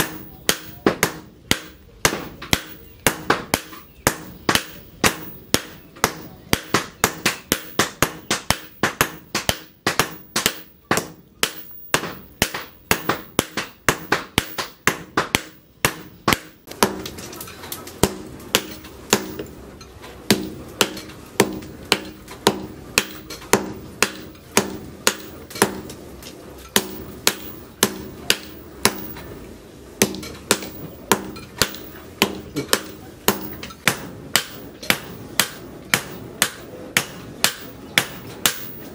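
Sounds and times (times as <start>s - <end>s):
hammer striking hot steel: 0.0s - 17.4s, 18.0s - 29.4s, 30.0s - 38.9s
low steady hum: 0.0s - 38.9s.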